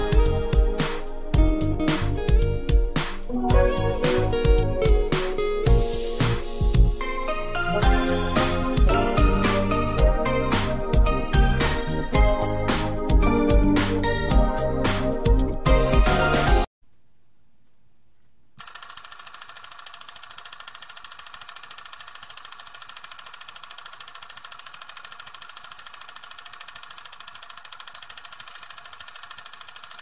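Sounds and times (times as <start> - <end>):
fast pulsing mechanical noise: 18.6 - 30.0.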